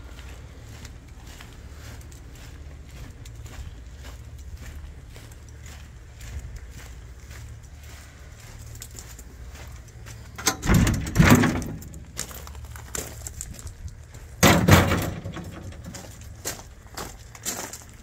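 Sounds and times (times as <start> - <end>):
light footsteps: 0.0 - 18.0
gate banging shut: 10.4 - 12.2, 14.4 - 16.2
gate rattling open: 10.4 - 12.6, 14.4 - 16.4.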